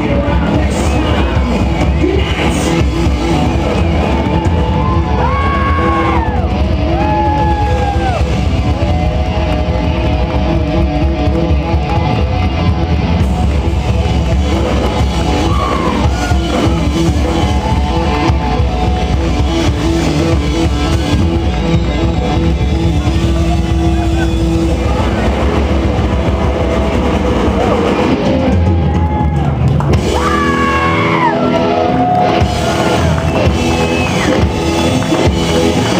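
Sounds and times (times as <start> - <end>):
drum kit: 0.0 - 35.9
electric guitar: 0.0 - 35.9.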